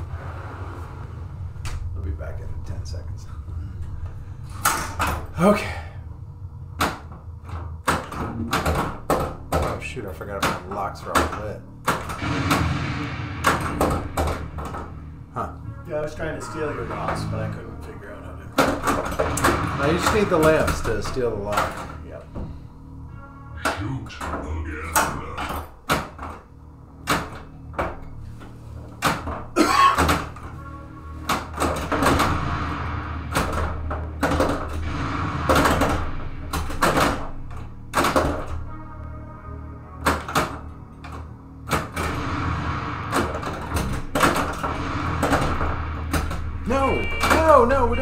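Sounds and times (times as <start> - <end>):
steady low hum: 0.0 - 48.0
pinball machine clatter: 6.8 - 12.8, 13.4 - 15.0, 18.5 - 22.1, 31.2 - 38.7, 40.0 - 48.0
pinball machine knocks: 7.8 - 15.0, 18.5 - 22.5, 29.0 - 38.7.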